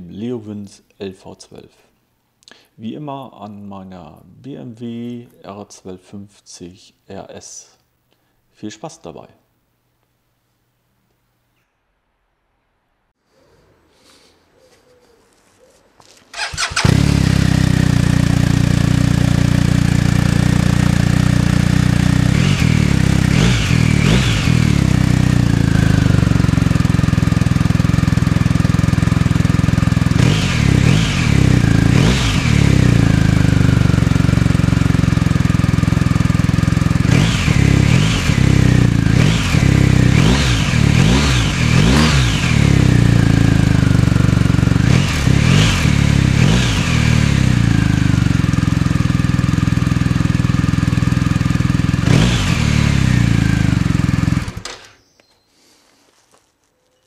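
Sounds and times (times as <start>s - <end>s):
motorcycle engine revving: 16.3s - 55.0s.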